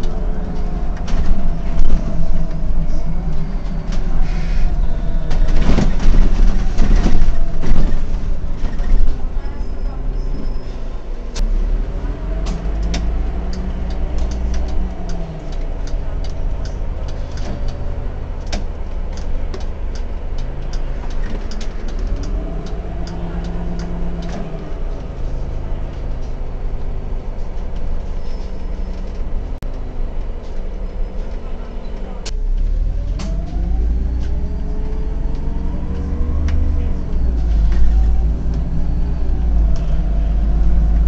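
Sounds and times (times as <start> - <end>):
rattles and clicks in cab: 0.0 - 9.6, 12.3 - 32.4
bus engine drone: 0.0 - 41.0.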